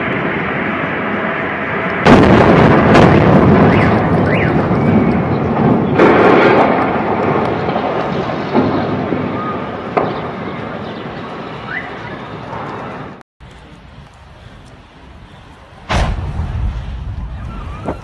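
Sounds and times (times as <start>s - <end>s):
loud explosion blast: 2.0s - 10.4s, 15.8s - 18.0s
long explosion rumble: 2.0s - 10.6s, 15.8s - 18.0s
small sharp bangs: 15.9s - 16.8s.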